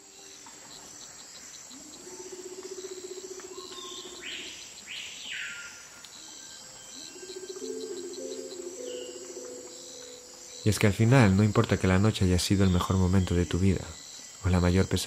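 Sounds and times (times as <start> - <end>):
insect chorus drone and chirps: 0.0 - 15.0
falling calls: 7.0 - 11.6.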